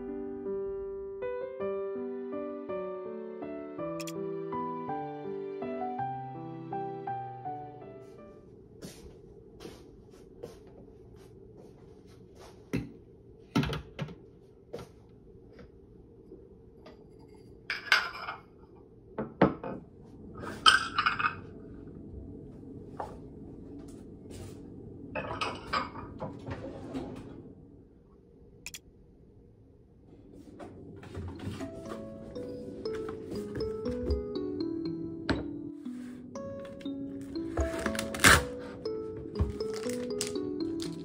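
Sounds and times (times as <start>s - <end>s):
dishes clinking and knocking: 17.7s - 18.4s, 25.2s - 26.3s
dishes clattering: 17.7s - 18.5s, 25.2s - 26.2s.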